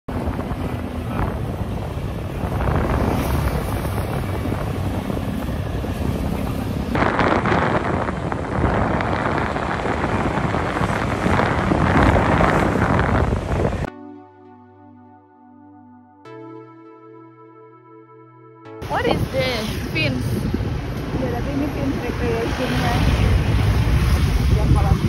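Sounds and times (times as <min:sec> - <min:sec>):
road noise: 0:00.0 - 0:13.9, 0:18.8 - 0:25.0
wind buffeting microphone: 0:00.1 - 0:13.9, 0:18.8 - 0:25.0.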